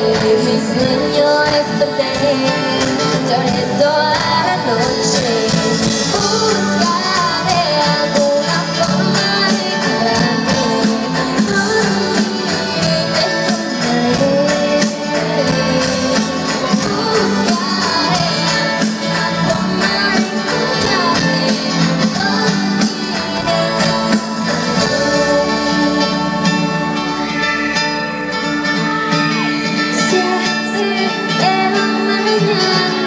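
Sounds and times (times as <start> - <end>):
live pop band playing ballad: 0.0 - 33.0.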